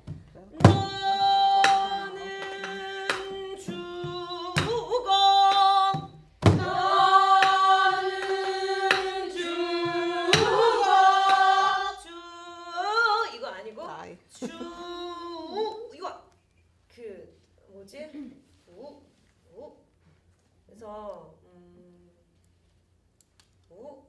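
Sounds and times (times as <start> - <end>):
woman singing folk song: 0.4 - 6.2
barrel drum knocks: 6.0 - 6.8.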